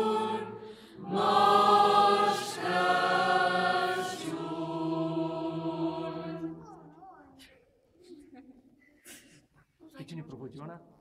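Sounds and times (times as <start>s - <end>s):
women's choir singing a cappella: 0.0s - 6.6s.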